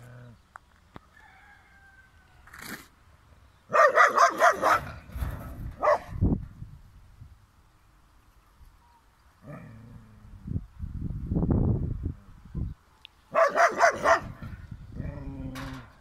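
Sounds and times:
dog barking: 3.7 - 5.0, 5.8 - 6.1, 13.3 - 14.4.

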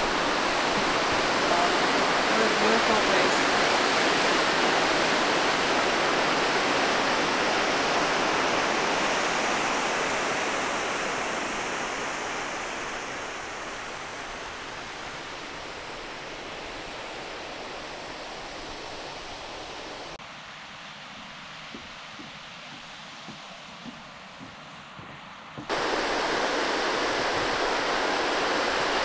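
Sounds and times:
waterfall rushing: 0.0 - 20.2, 25.7 - 29.0.

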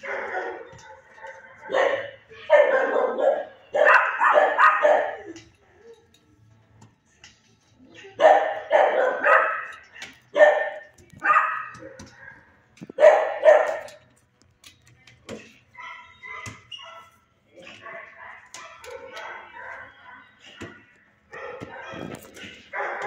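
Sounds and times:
dog barking: 0.0 - 5.4, 8.2 - 14.0, 15.8 - 23.0.

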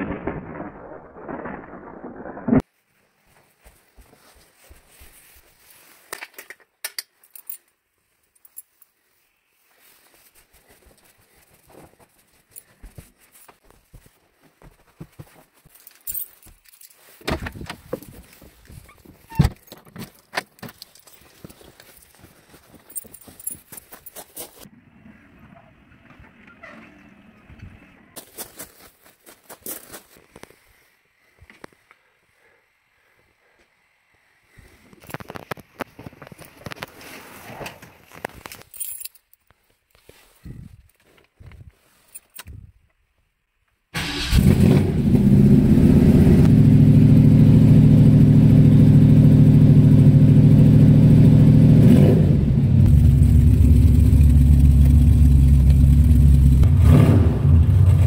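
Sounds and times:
keys jangling: 15.8 - 17.1, 19.6 - 24.7, 38.6 - 39.4
rustling and knocks in a car: 17.2 - 20.9.

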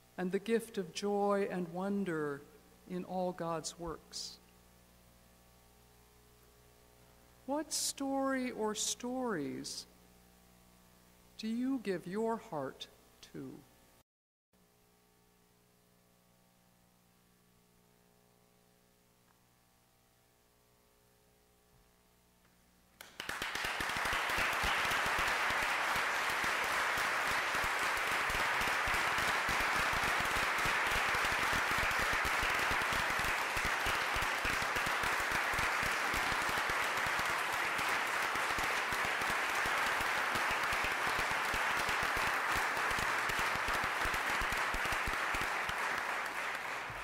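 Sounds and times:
large audience applauding: 23.0 - 47.0.

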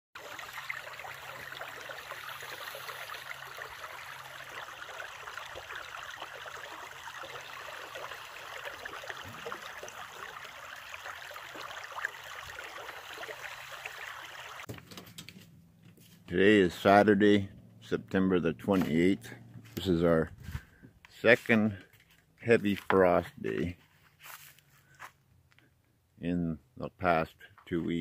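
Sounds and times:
brook trickling over stones: 0.2 - 14.8.

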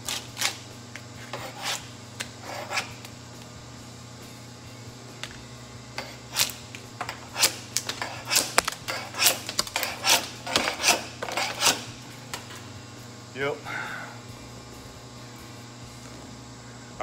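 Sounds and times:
paint scraper scraping concrete: 1.2 - 3.0, 6.0 - 11.9.

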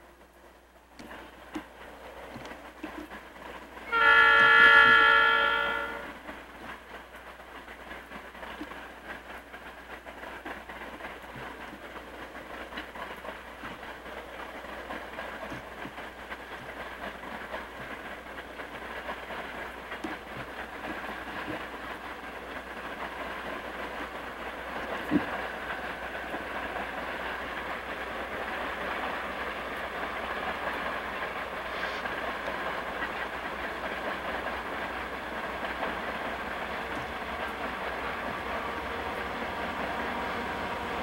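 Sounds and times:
diesel locomotives working uphill: 0.0 - 41.0
locomotive air horn: 3.9 - 6.2.

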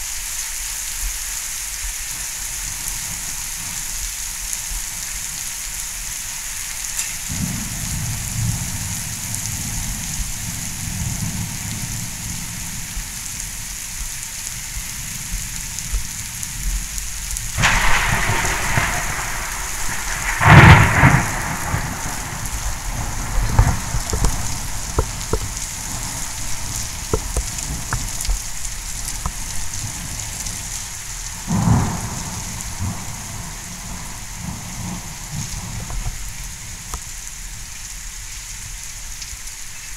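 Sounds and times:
heavy rain: 0.0 - 39.9
thunder: 17.5 - 28.3, 31.3 - 36.2.

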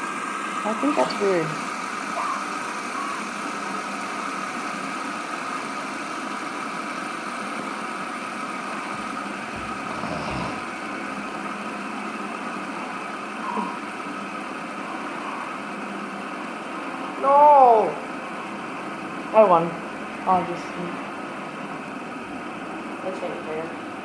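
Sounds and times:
fidget spinners whirring: 7.5 - 16.6.

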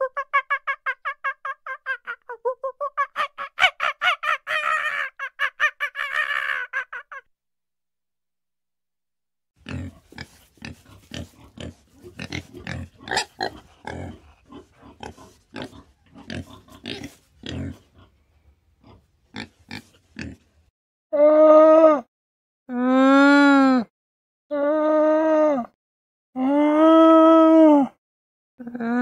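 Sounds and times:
pig grunting: 9.6 - 18.2, 18.8 - 20.5.

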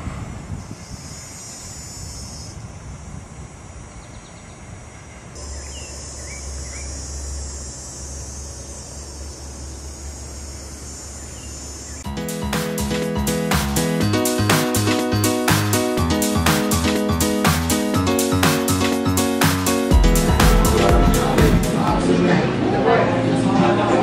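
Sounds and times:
insect drone in trees: 0.0 - 12.1
bird chirps: 3.9 - 7.4, 8.2 - 12.1
music: 12.0 - 24.0
low rumble: 19.9 - 22.6.

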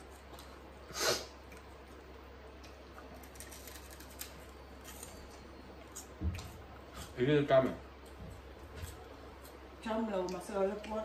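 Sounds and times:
faint crunching of chewing: 0.0 - 10.9
crisps crackling in a bowl: 2.6 - 5.4.

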